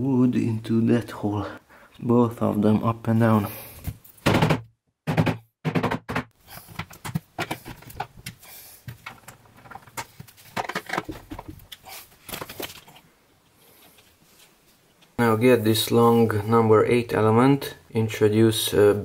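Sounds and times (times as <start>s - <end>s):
wooden panels knocking and clacking: 4.2s - 12.9s.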